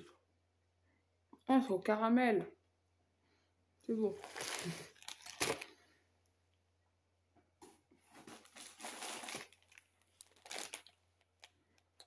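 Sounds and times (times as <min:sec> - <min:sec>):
plastic packaging crinkling: 0:04.0 - 0:05.8, 0:08.1 - 0:12.0.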